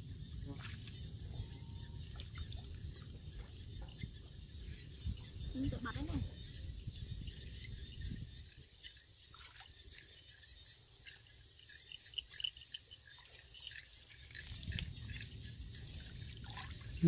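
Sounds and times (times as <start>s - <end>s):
muddy water sloshing: 0.4s - 17.0s
small water splashes: 7.2s - 17.0s.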